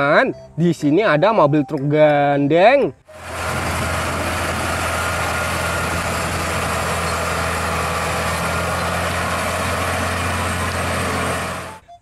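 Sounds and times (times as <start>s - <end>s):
truck diesel engine droning: 3.1s - 12.0s.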